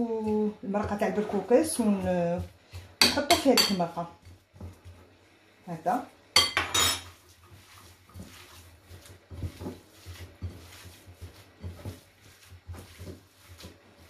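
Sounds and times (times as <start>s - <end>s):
hands kneading minced meat: 0.0s - 6.2s, 7.0s - 14.0s
metal spoon clinking: 6.4s - 7.0s.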